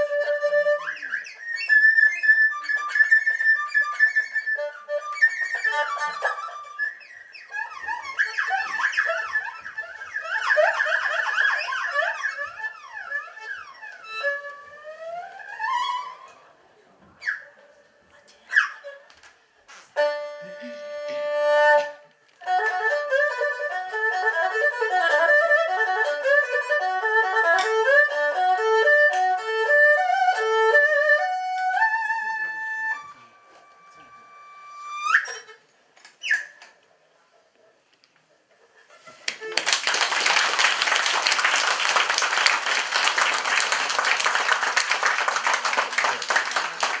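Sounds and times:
erhu playing birdlike trills: 0.0s - 16.5s, 20.0s - 36.5s
audience applauding: 39.2s - 47.0s.

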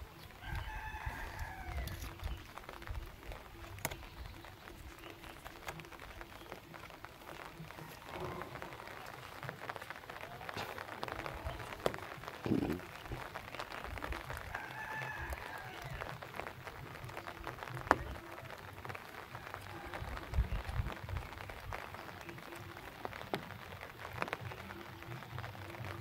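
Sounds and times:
fine crackling ticks: 0.0s - 26.0s
distant rooster crowing: 0.3s - 2.2s, 14.4s - 16.2s.

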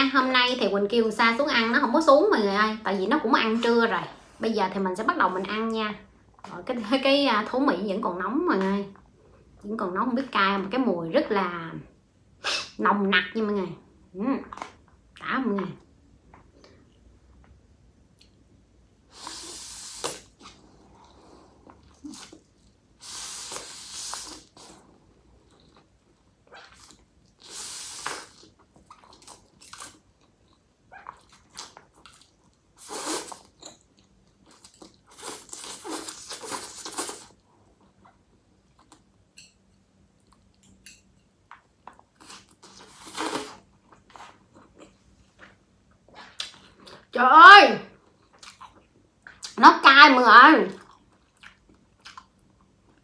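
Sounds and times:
person slurping noodles: 19.1s - 22.4s, 23.0s - 25.0s, 32.8s - 33.6s, 35.1s - 37.4s, 42.2s - 43.7s
person chewing: 19.1s - 39.2s, 40.1s - 47.0s, 48.0s - 49.6s, 50.8s - 53.0s.

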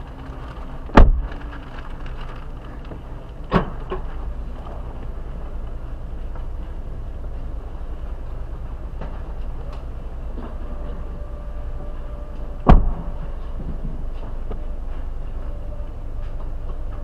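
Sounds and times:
steady low rumble: 0.0s - 17.0s
car trunk lid slamming: 12.6s - 13.2s.

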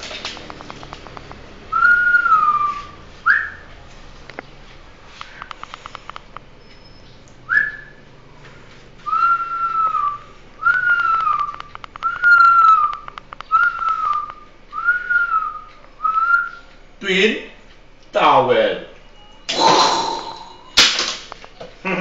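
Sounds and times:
whistled notes: 1.7s - 3.7s, 6.7s - 8.1s, 9.1s - 16.8s.

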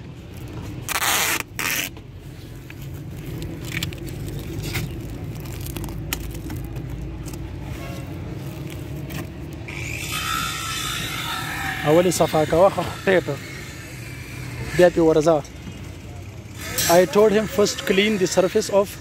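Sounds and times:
cloth rubbing on tape: 0.5s - 6.6s.

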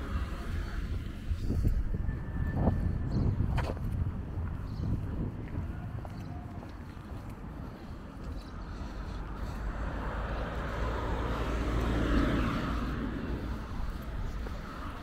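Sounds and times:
steady low rumble: 0.0s - 15.0s
vehicle passing by: 8.3s - 15.0s.

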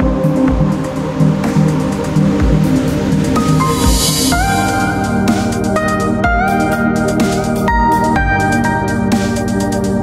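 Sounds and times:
low bass notes: 0.0s - 10.0s
sustained chords: 0.1s - 7.6s.

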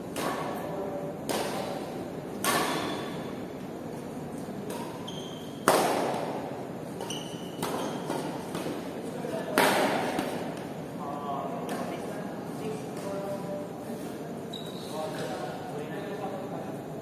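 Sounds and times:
rackets hitting shuttlecock: 0.0s - 3.4s, 4.4s - 10.8s
shoes squeaking on court: 4.3s - 5.7s, 6.9s - 8.6s, 14.5s - 15.4s.

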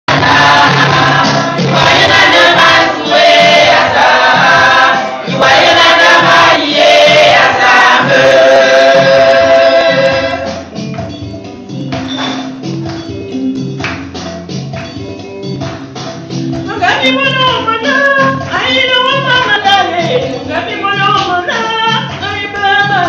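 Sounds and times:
group of singers: 0.1s - 10.7s
music with a steady beat: 0.1s - 23.0s
woman singing into a microphone: 16.8s - 23.0s.

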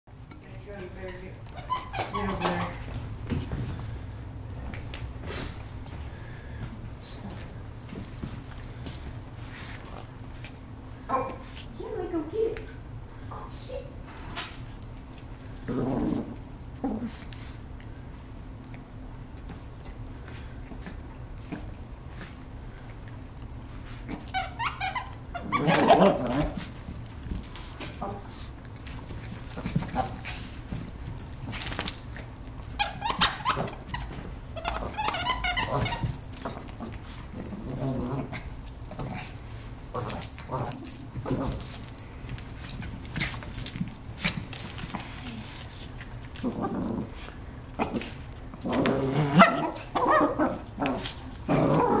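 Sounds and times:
dogs play-fighting vocalizing: 15.4s - 17.6s, 19.5s - 52.0s
small dogs play-fighting vocalising: 24.1s - 26.8s, 32.7s - 41.9s.

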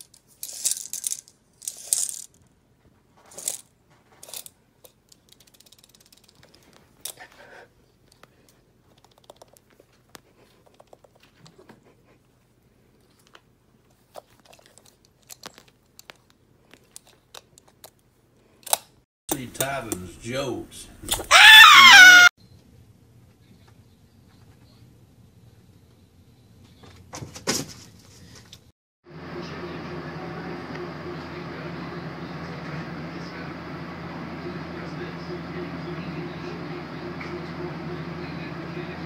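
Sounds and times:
metal tape measure rattling: 0.0s - 2.4s, 3.2s - 7.2s.

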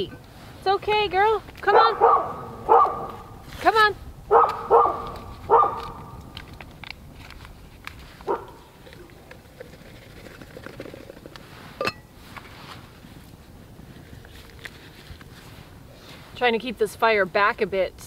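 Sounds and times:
dog barking: 1.7s - 3.3s, 4.3s - 6.1s, 8.3s - 8.7s.

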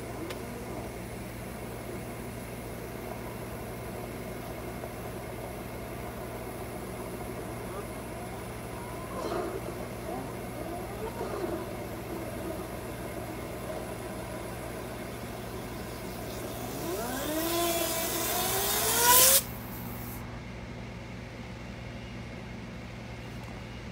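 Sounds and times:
steady low hum: 0.0s - 23.9s
air hose hissing and whining: 11.6s - 20.2s.

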